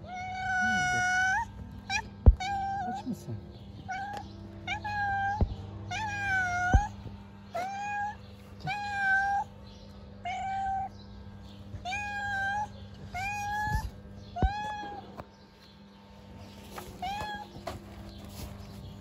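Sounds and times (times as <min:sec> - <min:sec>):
cat meowing: 0:00.0 - 0:03.2, 0:03.8 - 0:09.5, 0:10.2 - 0:10.9, 0:11.8 - 0:15.2.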